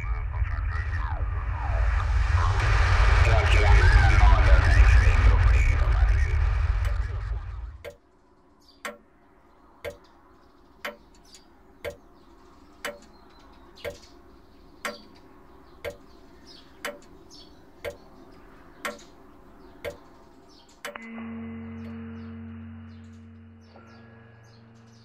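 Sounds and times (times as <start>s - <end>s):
low steady hum: 0.0s - 25.0s
faint bird chirps: 7.9s - 25.0s
clock ticking: 8.8s - 9.1s, 9.8s - 10.2s, 10.8s - 12.1s, 12.8s - 13.2s, 13.8s - 14.1s, 14.8s - 15.2s, 15.8s - 17.2s, 17.8s - 18.2s, 18.8s - 19.2s, 19.8s - 20.2s, 20.8s - 21.1s.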